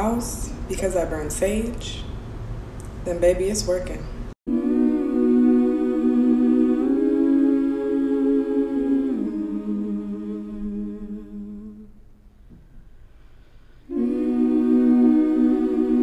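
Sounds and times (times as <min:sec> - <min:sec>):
wordless hummed vocal music: 0:04.5 - 0:12.3, 0:13.8 - 0:16.0.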